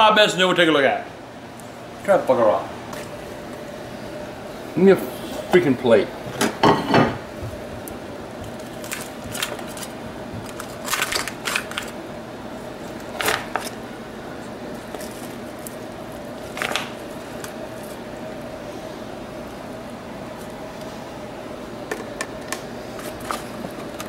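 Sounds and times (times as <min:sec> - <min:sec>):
faint steady hum: 0:00.0 - 0:24.0
plate being put down: 0:06.4 - 0:07.2.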